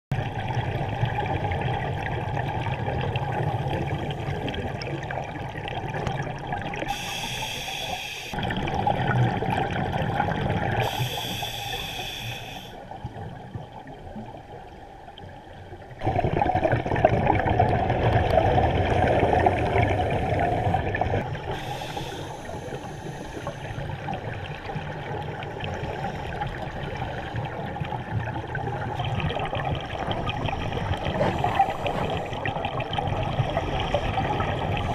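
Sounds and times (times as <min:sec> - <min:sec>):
bubbles gurgling: 0:00.1 - 0:07.1, 0:08.3 - 0:11.2, 0:15.9 - 0:34.9
diver breathing through regulator: 0:06.9 - 0:08.4, 0:10.8 - 0:12.8, 0:21.5 - 0:23.9, 0:30.4 - 0:32.8.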